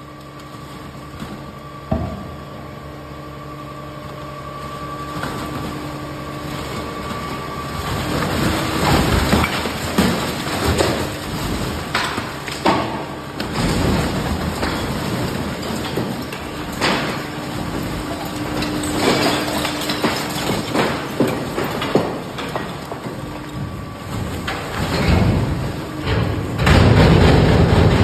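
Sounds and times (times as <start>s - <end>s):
trash clattering into pit: 5.0s - 28.0s
knocks and thuds: 24.2s - 28.0s.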